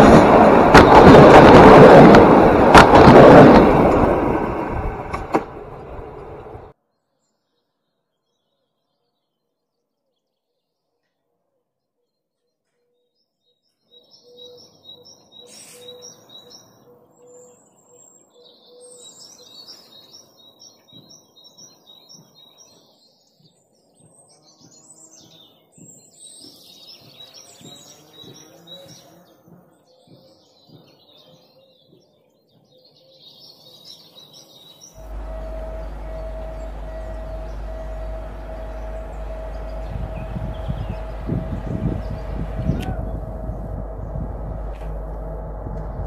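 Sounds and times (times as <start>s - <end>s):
loud train running: 0.0s - 6.7s, 35.0s - 46.0s
low outdoor background noise: 5.6s - 46.0s
small birds chirping: 11.8s - 44.7s.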